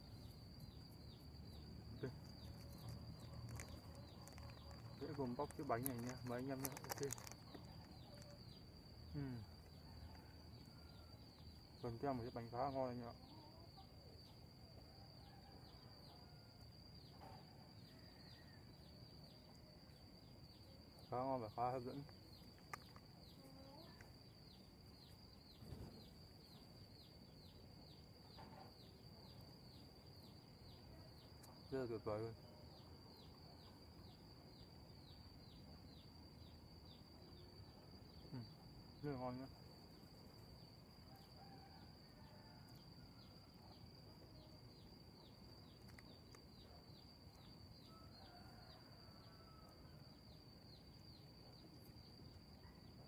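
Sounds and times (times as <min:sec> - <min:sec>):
high-pitched insect drone: 0:00.0 - 0:28.0, 0:33.1 - 0:42.7
faint high-pitched chirping: 0:00.0 - 0:53.0.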